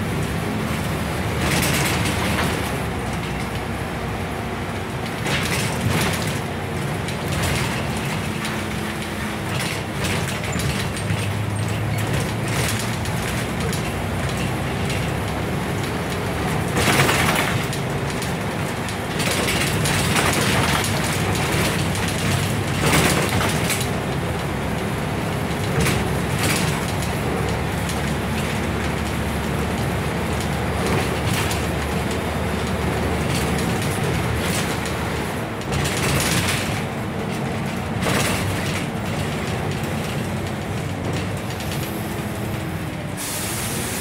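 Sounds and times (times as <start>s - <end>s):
bus engine running: 0.0s - 44.0s
body and fittings rattling: 5.0s - 24.2s, 25.4s - 42.9s.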